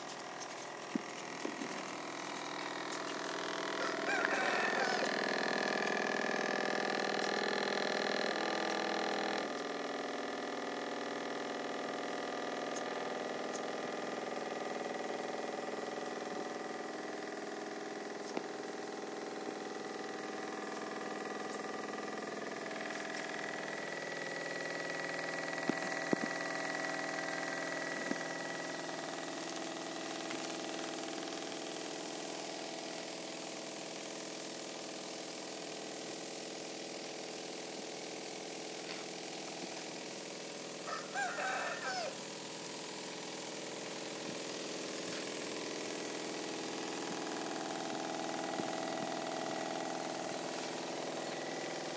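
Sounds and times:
motor humming: 0.0 - 51.9
rooster crowing: 3.8 - 5.6, 40.8 - 42.2.

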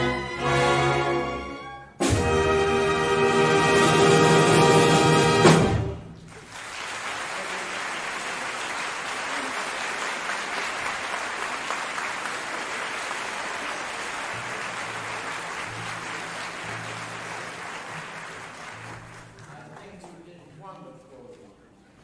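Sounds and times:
audience applauding: 6.2 - 20.5.

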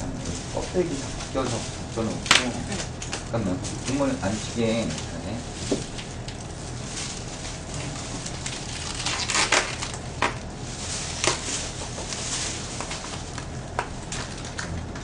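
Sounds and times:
plastic bags rustling: 0.0 - 15.0
cling film crinkling: 0.1 - 15.0.

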